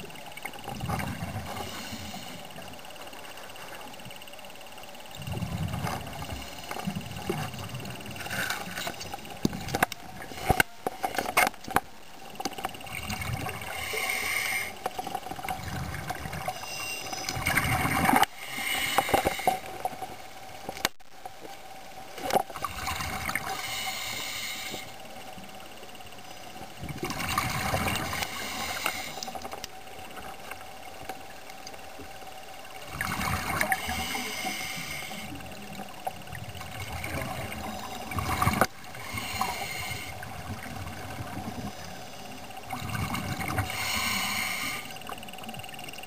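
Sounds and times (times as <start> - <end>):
hissy surges: 23.2 - 30.2, 33.0 - 42.8.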